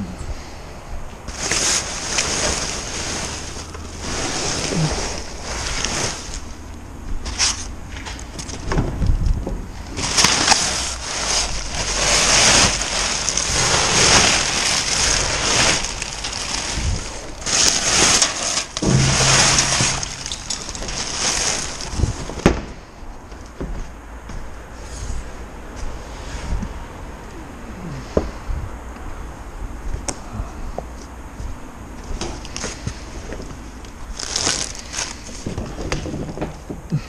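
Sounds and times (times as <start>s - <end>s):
plastic bags rustling: 1.3s - 8.6s, 9.8s - 23.0s, 32.2s - 36.4s.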